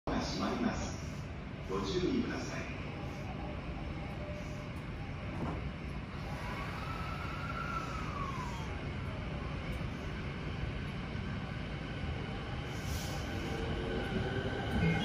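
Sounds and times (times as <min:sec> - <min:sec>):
train low rumble: 0:00.1 - 0:15.0
train motor whine: 0:05.3 - 0:08.8.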